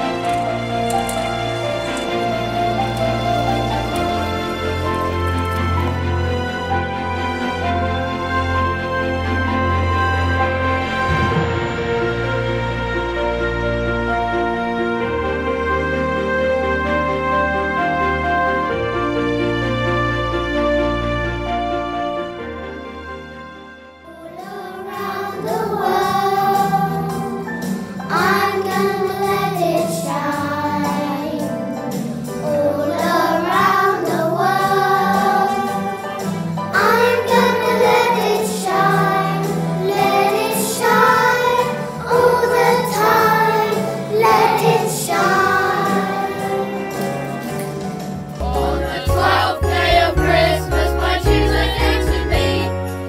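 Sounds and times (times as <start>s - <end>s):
instrumental background music: 0.0s - 53.0s
children singing together: 24.1s - 47.8s, 48.4s - 52.8s.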